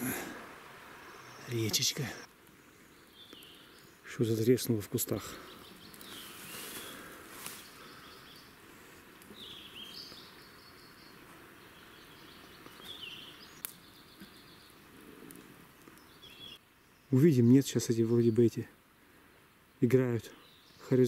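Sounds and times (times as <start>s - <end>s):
background hiss: 0.0s - 21.0s
faint bird song: 0.0s - 21.0s.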